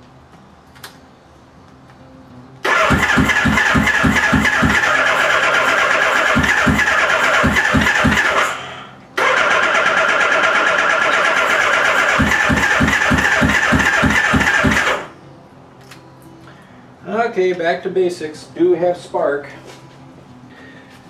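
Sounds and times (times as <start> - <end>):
motorcycle starter cranking: 2.6 - 15.1.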